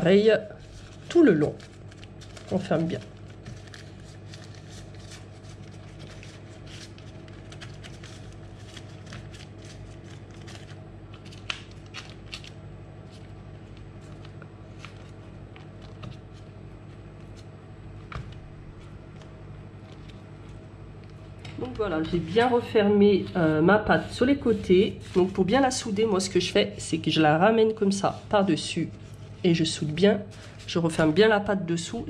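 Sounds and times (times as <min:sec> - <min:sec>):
steady low hum: 0:00.0 - 0:32.0
baking paper crinkling: 0:00.4 - 0:17.5, 0:24.5 - 0:31.4
paper snap: 0:10.5 - 0:12.6.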